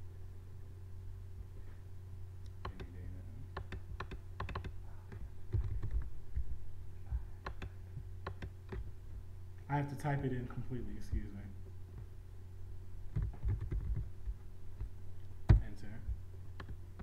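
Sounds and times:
steady low hum: 0.0 - 17.0
keyboard typing: 2.6 - 6.1, 7.4 - 8.9, 13.1 - 14.1, 16.6 - 17.0.

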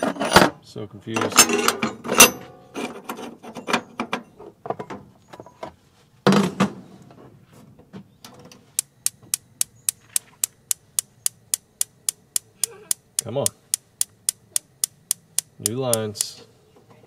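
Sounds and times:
spark igniter clicking: 8.8 - 16.4.

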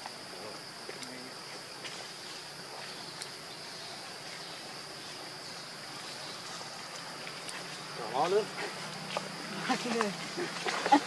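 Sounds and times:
background hiss: 0.0 - 11.0
insect chorus drone: 0.0 - 11.0
faint ticks: 3.1 - 3.4.

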